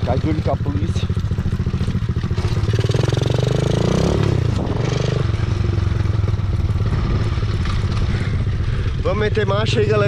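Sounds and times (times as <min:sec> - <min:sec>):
mini motorbike engine: 0:00.0 - 0:10.0.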